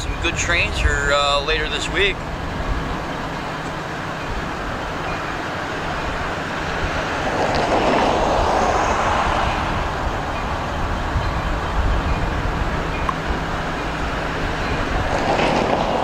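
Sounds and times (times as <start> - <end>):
diesel locomotive engine drone: 0.0 - 16.0.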